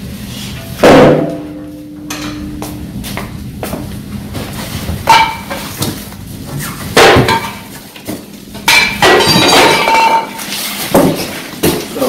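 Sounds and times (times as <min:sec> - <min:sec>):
sheet metal parts clanking: 0:08.6 - 0:12.0.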